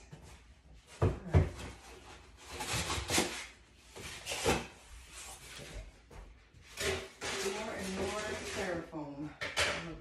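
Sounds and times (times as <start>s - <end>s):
packing scraping and rubbing: 6.8s - 8.8s.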